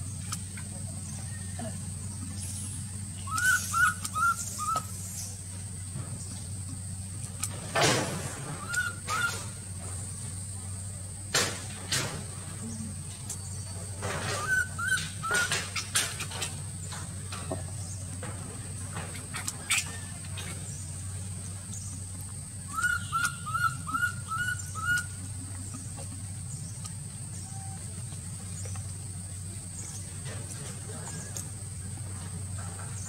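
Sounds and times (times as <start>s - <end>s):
steady low hum: 0.0s - 33.0s
small animal chirping: 2.6s - 5.3s, 22.6s - 27.8s.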